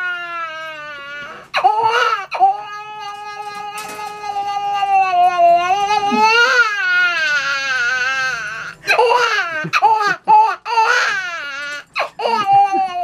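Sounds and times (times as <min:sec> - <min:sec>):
man imitating a crying baby: 0:01.1 - 0:10.1, 0:12.2 - 0:13.0.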